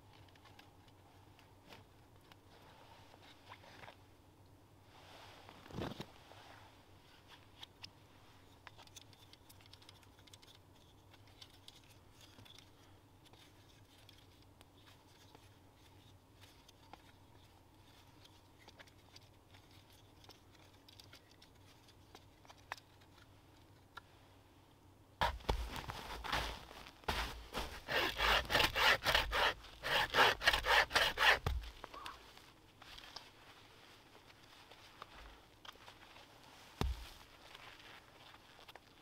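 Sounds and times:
wooden saw parts clicking: 8.6 - 12.7.

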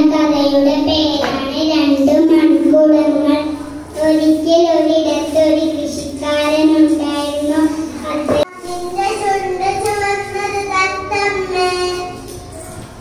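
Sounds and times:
girl singing into microphone: 6.8 - 12.6.

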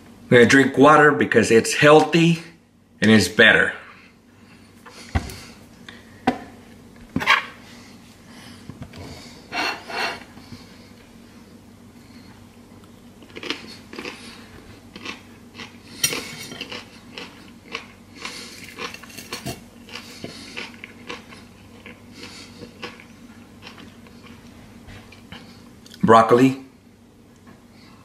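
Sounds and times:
chewing: 12.8 - 26.0
fork clinking and scraping on plate: 16.0 - 16.8.

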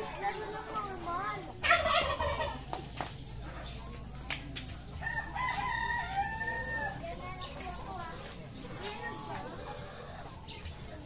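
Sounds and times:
chickens calling: 0.0 - 11.0
chicken squawk: 1.6 - 2.6
rooster crowing: 5.0 - 7.0.

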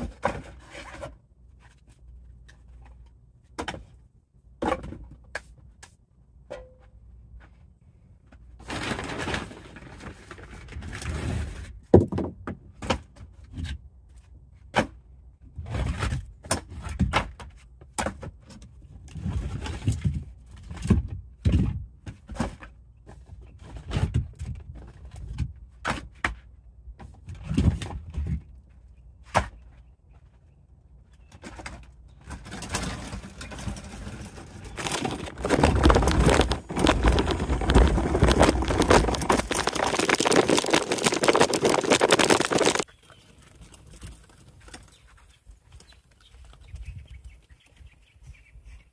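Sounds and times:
wagon wheels rattling over dirt: 32.3 - 45.2.

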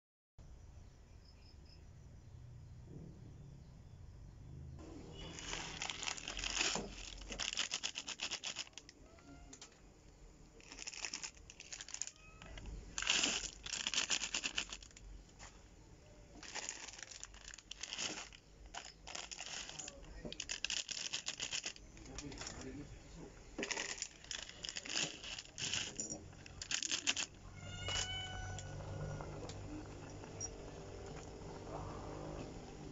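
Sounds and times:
plastic packet crinkling: 5.2 - 9.0, 10.6 - 15.0, 16.4 - 22.8, 23.6 - 28.1.

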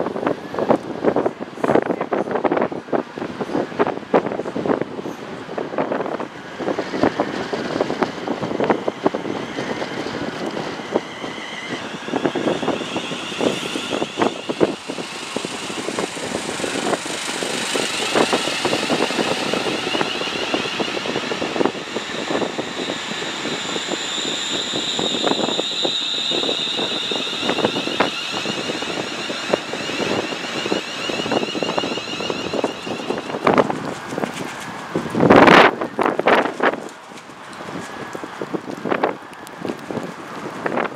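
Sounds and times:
high whine: 6.0 - 34.5
train wheels clicking over rail joints: 6.8 - 38.0.

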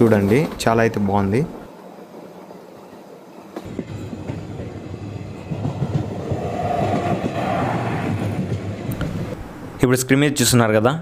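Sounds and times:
train wheels clattering on rails: 1.7 - 9.8.

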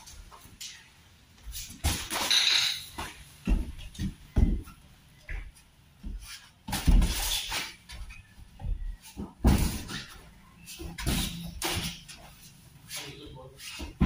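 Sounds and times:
boxing gloves thudding: 8.6 - 10.1.

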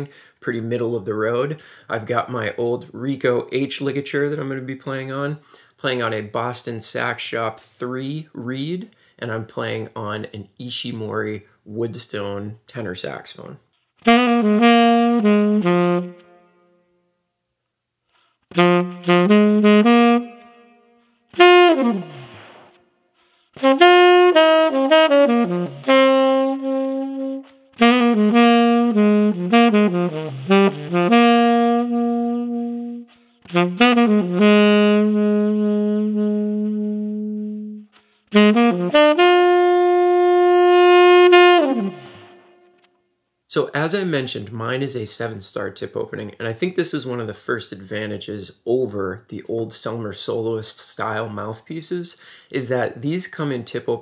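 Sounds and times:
solo tenor saxophone jazz: 13.2 - 17.1, 18.1 - 42.9.

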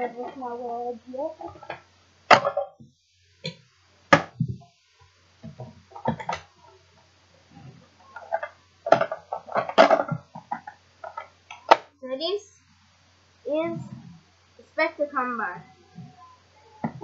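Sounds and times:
plastic toy parts knocking: 5.4 - 6.5, 8.2 - 11.9.

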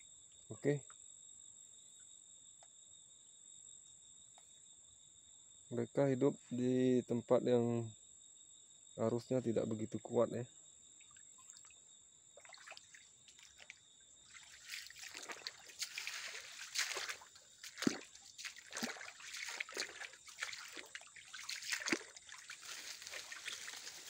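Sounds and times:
stream trickling over stones: 12.4 - 24.0.

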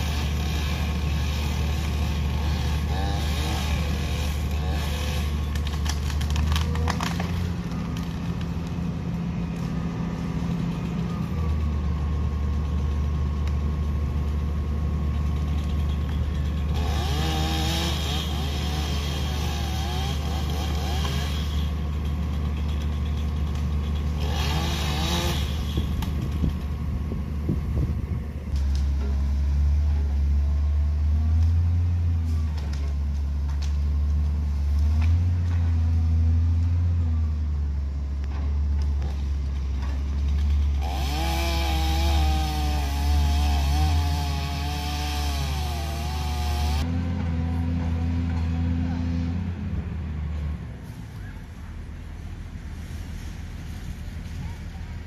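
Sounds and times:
chainsaw cutting: 0.0 - 33.8, 39.8 - 49.4
diesel engine running: 0.0 - 55.0.

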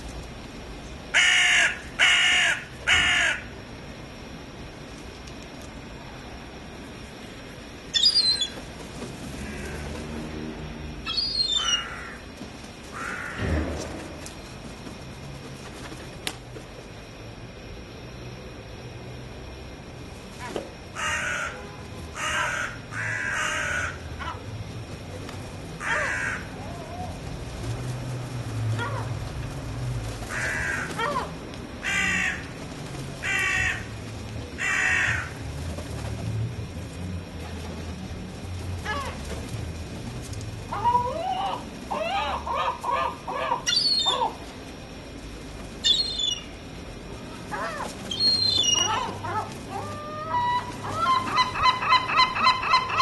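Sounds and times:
crow cawing harshly: 1.1 - 3.5, 9.4 - 9.8, 11.5 - 12.2, 12.9 - 13.6, 21.0 - 21.6, 22.2 - 24.4, 25.8 - 26.6, 30.3 - 32.4, 33.2 - 33.9, 34.6 - 35.4
gulls high sharp calls: 1.1 - 3.5, 7.9 - 8.6, 11.0 - 12.2, 12.9 - 13.5, 20.4 - 24.5, 25.8 - 27.2, 28.7 - 29.2, 30.2 - 32.5, 33.2 - 34.0, 40.6 - 44.5, 45.8 - 46.6, 47.4 - 53.0
gull gliding call: 47.5 - 53.0.

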